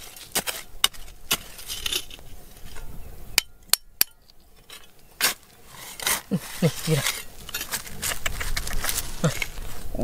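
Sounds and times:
metal tool striking rock: 0.0s - 5.4s, 6.0s - 8.4s.

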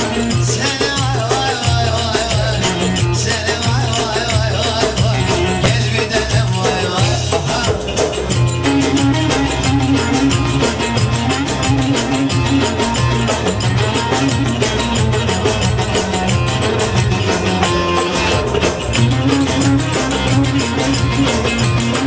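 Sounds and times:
frame drums and darbuka beat: 0.0s - 22.0s
plucked lute melody: 5.4s - 6.4s.

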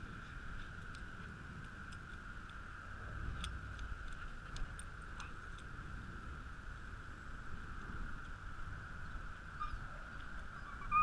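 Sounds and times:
light ticks and clicks: 0.0s - 5.8s
steady hiss and low rumble: 0.0s - 11.0s.

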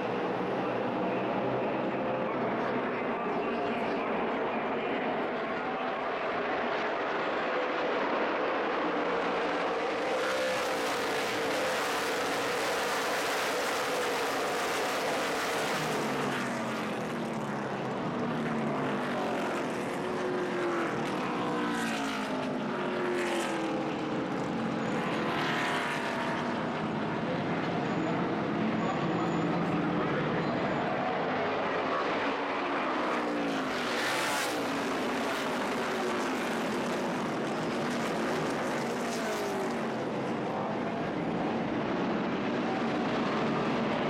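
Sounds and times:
race car engines passing: 0.0s - 44.0s.

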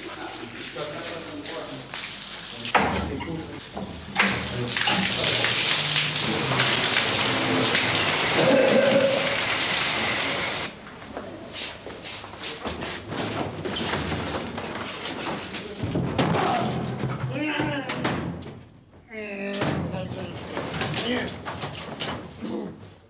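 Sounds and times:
hose water spraying hiss: 4.5s - 10.7s.

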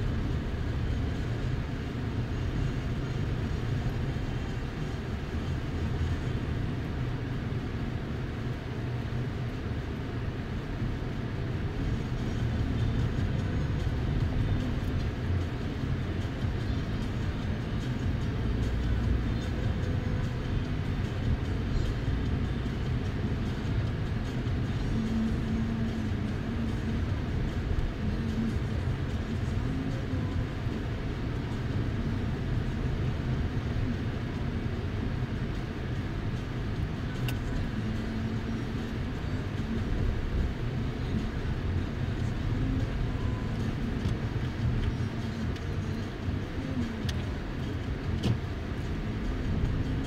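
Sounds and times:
engine and tyre rumble: 0.0s - 50.0s
faint engine hum: 0.0s - 50.0s.

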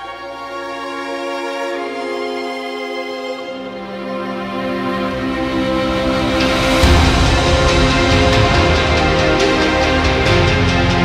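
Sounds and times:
heavy bass: 5.1s - 11.0s
drums: 6.2s - 11.0s.

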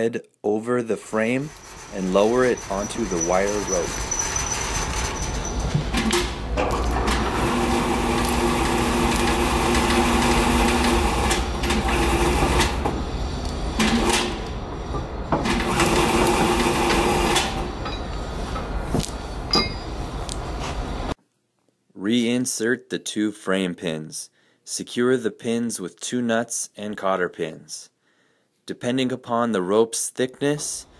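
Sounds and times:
industrial machinery hum: 1.3s - 21.2s
metal knocks: 19.4s - 20.0s.

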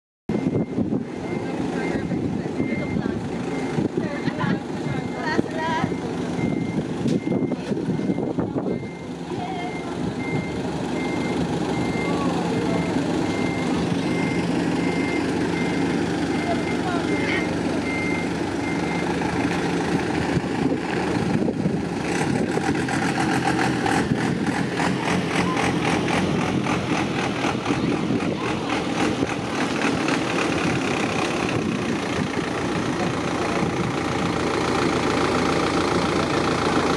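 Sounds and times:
minibus engine running: 0.3s - 36.9s.

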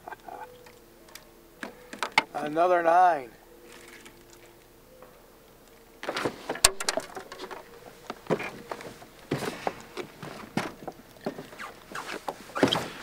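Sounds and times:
clicks knocks and rustles in boat: 1.6s - 2.3s, 6.0s - 13.0s.

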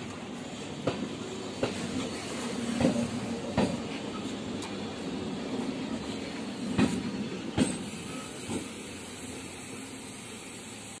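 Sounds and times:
wheels clacking over rail joints: 0.0s - 4.9s, 6.2s - 9.0s
train wheels rumbling: 0.0s - 11.0s.

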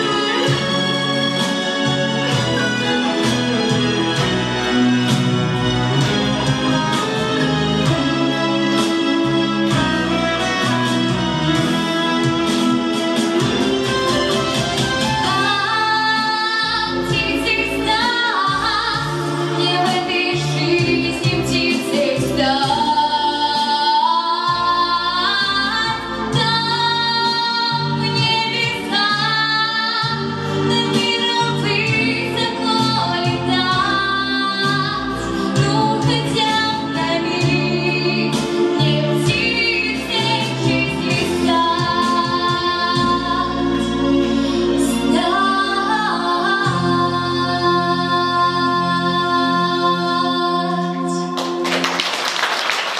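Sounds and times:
instrumental accompaniment: 0.0s - 52.9s
woman singing pop song: 15.2s - 51.4s.

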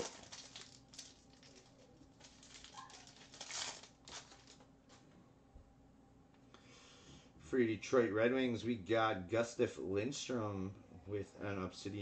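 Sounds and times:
card pack wrapper crinkling: 0.0s - 4.7s.

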